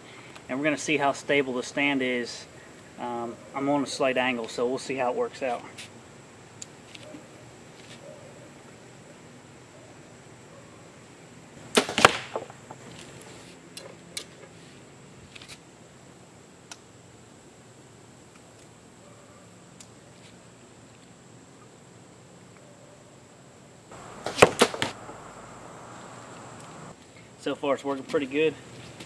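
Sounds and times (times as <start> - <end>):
arrow striking foam target: 11.7 - 12.7, 24.1 - 25.2.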